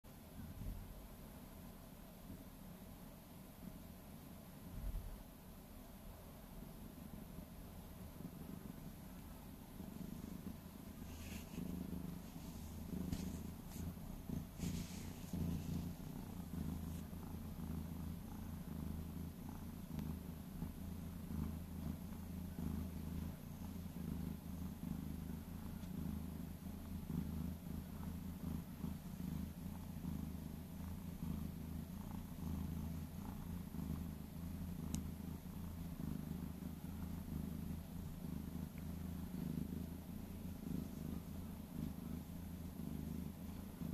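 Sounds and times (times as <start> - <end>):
cat purring: 0.1 - 43.9
soft rustles: 9.2 - 43.9.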